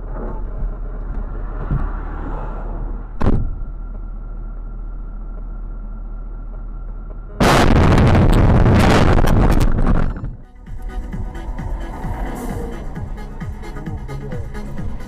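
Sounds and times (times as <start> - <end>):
car engine and road rumble: 0.0 - 15.0
sharp thump: 3.2 - 3.7.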